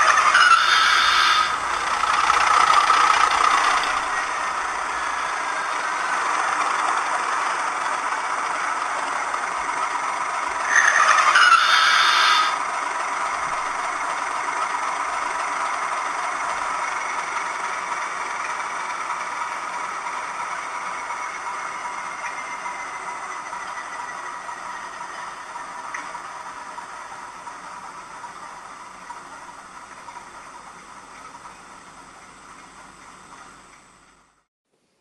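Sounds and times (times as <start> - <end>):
loud burst of noise: 0.0 - 27.5
diesel engine idling through speaker: 0.0 - 34.5.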